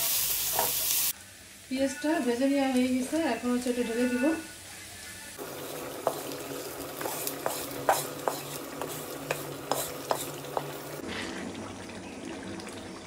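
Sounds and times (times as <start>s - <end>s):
oil sizzling: 0.0s - 13.0s
wooden spatula scraping metal pan: 6.0s - 11.0s.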